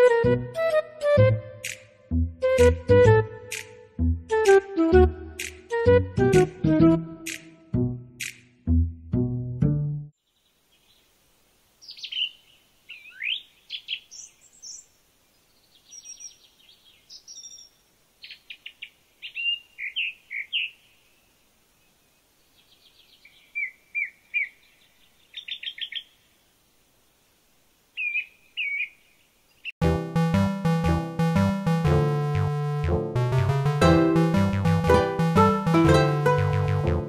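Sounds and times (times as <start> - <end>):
bird clicking notes: 1.6 - 1.9, 3.5 - 3.8, 5.4 - 5.6, 7.3 - 7.6, 8.2 - 8.5
birds chirping: 11.8 - 26.2, 28.0 - 29.8.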